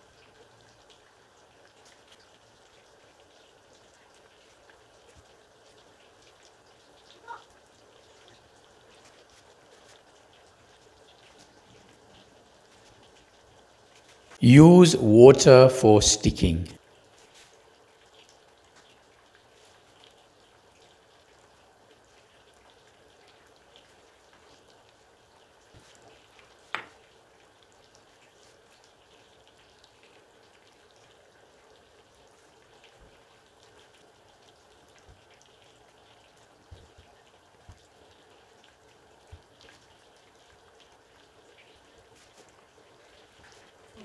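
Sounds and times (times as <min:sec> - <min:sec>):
steady low hiss: 0:09.0 - 0:17.5.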